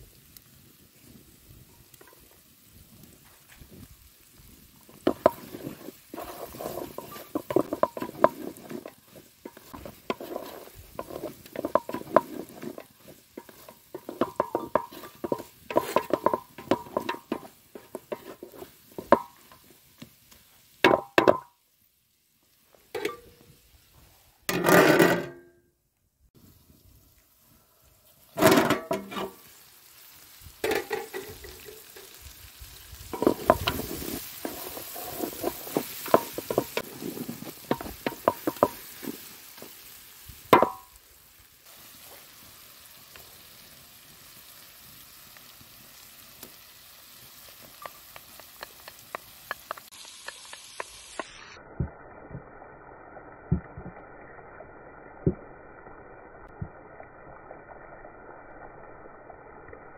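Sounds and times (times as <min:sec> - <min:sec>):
chicken sizzling: 0:00.0 - 0:25.2, 0:26.3 - 0:59.9
wooden spatula scraping metal pot: 0:04.9 - 0:19.8, 0:28.4 - 0:29.4, 0:30.6 - 0:32.2, 0:33.1 - 0:39.8.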